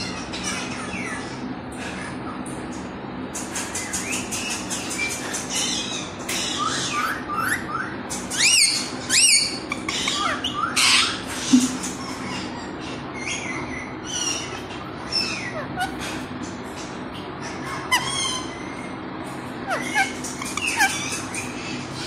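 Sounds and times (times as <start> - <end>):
parrot chirps: 3.4 - 16.0, 19.6 - 21.8
parrot squawks: 12.0 - 16.0, 19.6 - 21.6.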